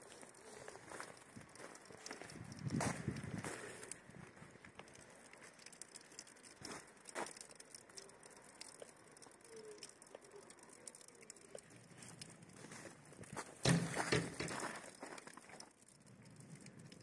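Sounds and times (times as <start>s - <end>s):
small clicks: 0.0s - 17.0s.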